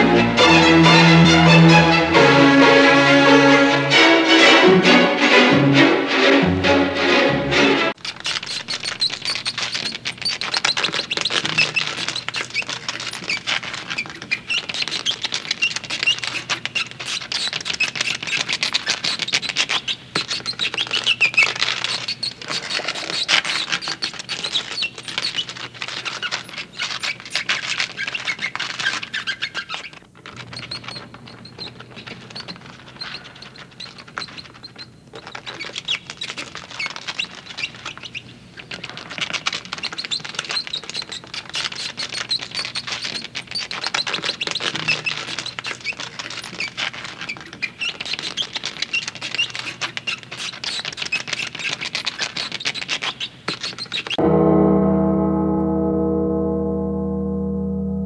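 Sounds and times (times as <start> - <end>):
rapid creature clicking: 17.4 - 28.0.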